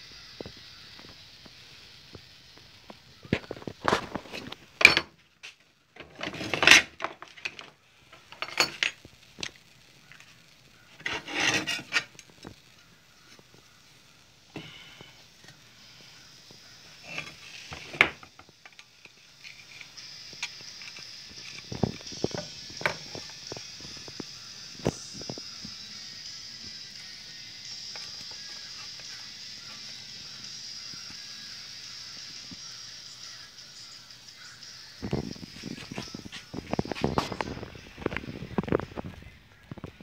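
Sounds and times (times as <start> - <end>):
faint high hiss: 0.0 - 6.0, 7.4 - 40.0
rubbing and scraping plastic pipe: 2.9 - 4.6, 6.0 - 7.8, 11.0 - 12.6, 35.1 - 40.0.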